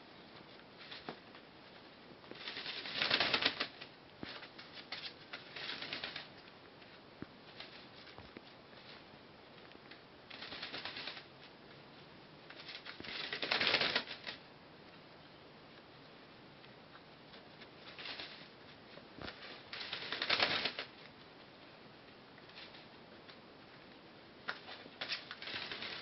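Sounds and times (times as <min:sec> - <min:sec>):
bird shaking feathers rustling: 0:00.8 - 0:01.3, 0:02.3 - 0:06.4, 0:10.3 - 0:11.5, 0:12.5 - 0:14.5, 0:17.8 - 0:21.0, 0:24.6 - 0:26.0.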